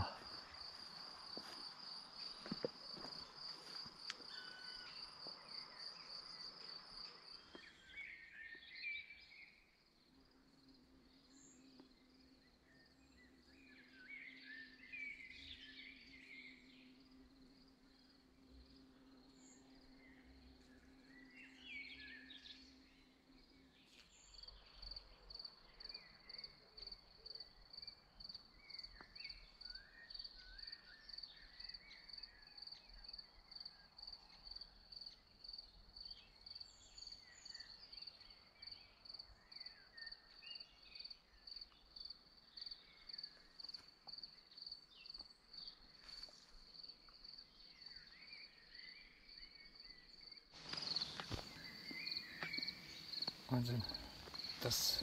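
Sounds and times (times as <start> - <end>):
birdsong: 0.0 - 9.8, 10.9 - 55.0
cricket chirping: 0.0 - 55.0.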